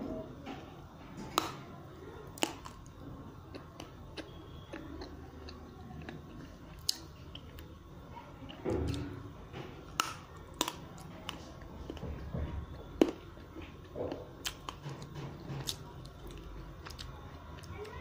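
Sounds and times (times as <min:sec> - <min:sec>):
chocolate crunching and snapping: 0:02.2 - 0:07.8, 0:09.8 - 0:18.0.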